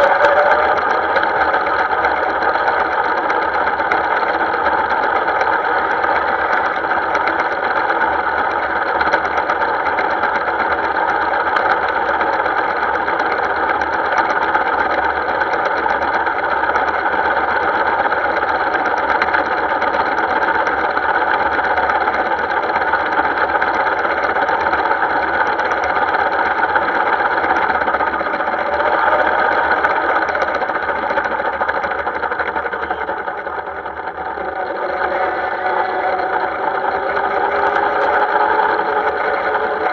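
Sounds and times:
miniature train clattering: 0.0s - 39.9s
train motor whine: 0.0s - 39.9s.

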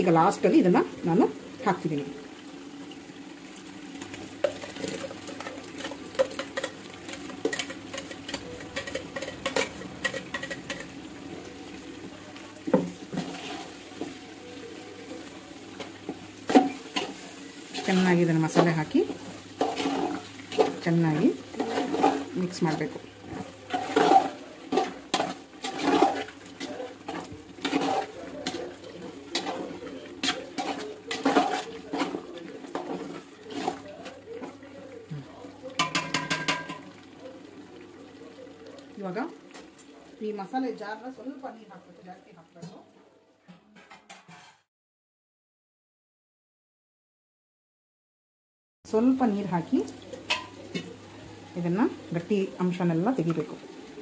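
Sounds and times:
spoon stirring thick wet food: 3.9s - 40.3s, 49.8s - 52.5s
spoon clinking against metal pot: 4.4s - 10.9s, 35.8s - 36.9s.

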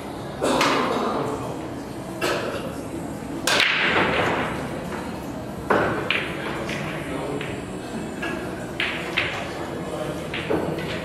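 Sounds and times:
pool balls clacking: 3.4s - 11.0s.

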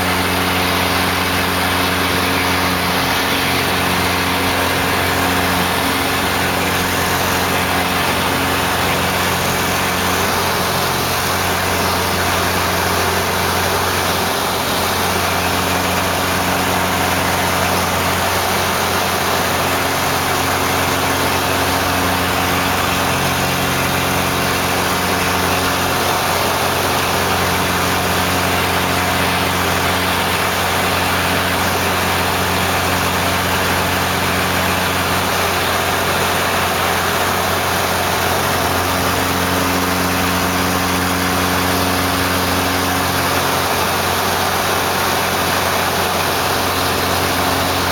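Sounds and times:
airplane engine and propeller: 0.0s - 47.9s
rushing airflow: 0.1s - 31.7s.

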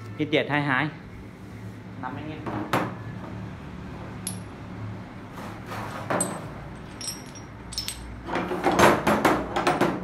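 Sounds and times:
ringing metal clinks: 4.2s - 4.5s, 6.2s - 8.2s
metal tools knocking and scraping: 5.8s - 10.0s.

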